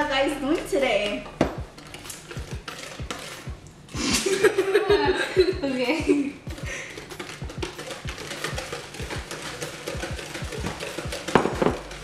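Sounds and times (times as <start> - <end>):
batter beaten in plastic bowl: 0.0 - 12.0.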